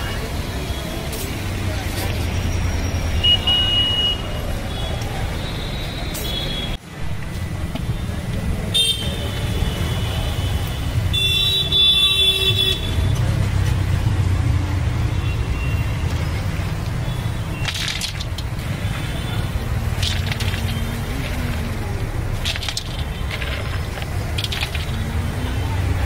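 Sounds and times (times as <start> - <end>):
street traffic rumble: 0.0 - 26.0
vehicle horns honking: 3.2 - 6.8, 8.7 - 13.0.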